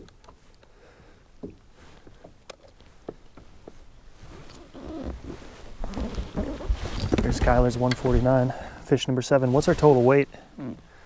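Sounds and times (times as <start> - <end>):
faint clicks and knocks: 1.4 - 3.8.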